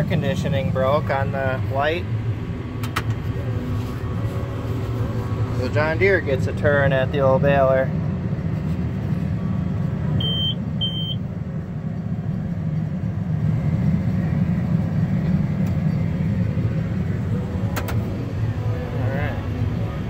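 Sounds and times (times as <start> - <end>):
tractor diesel engine drone: 0.0 - 20.0
short electronic beeps: 10.2 - 11.2.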